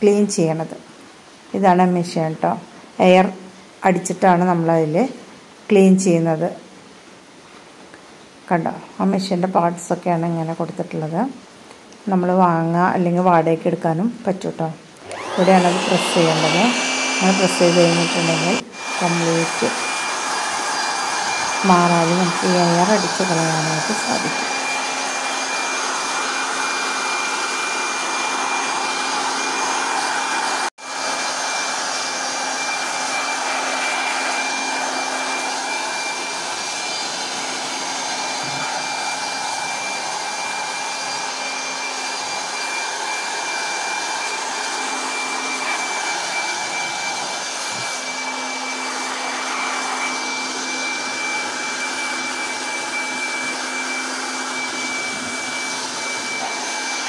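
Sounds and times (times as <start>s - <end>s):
air blower whining: 15.0s - 57.0s.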